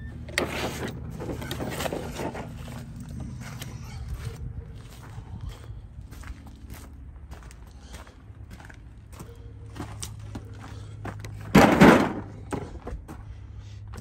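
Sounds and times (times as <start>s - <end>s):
footsteps on gravel: 0.5s - 14.0s
loud thud: 11.5s - 12.4s.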